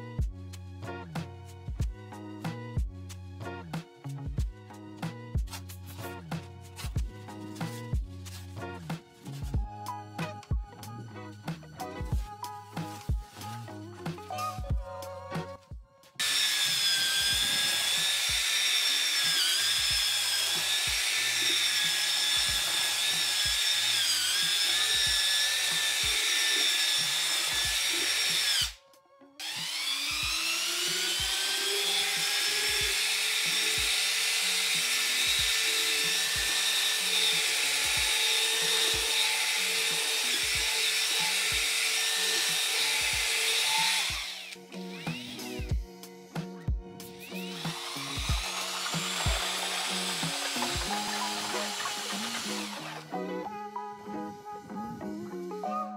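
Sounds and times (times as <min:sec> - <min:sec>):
background music with steady beat: 0:00.0 - 0:55.9
paddle mixer motor whining: 0:16.2 - 0:28.8, 0:29.4 - 0:45.6, 0:47.2 - 0:53.3.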